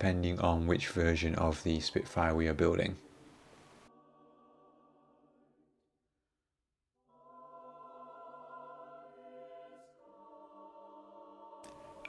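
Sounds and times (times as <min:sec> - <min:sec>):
choir holding chords: 0:03.8 - 0:05.8, 0:07.0 - 0:12.0.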